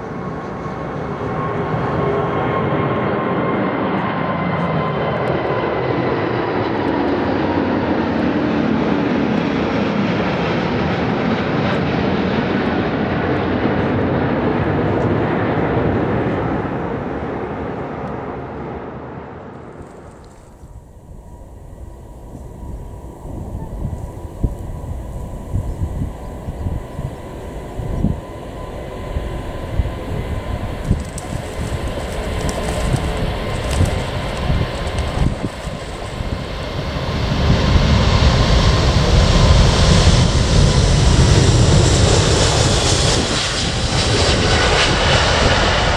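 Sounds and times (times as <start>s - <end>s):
jet engine noise overhead: 0.0s - 45.9s
faint whine: 18.8s - 36.8s.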